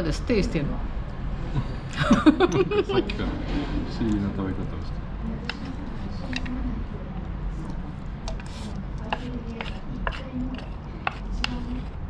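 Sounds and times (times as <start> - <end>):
low steady hum: 0.0 - 12.0
chopsticks clicking against a box: 5.4 - 6.6, 7.6 - 11.6.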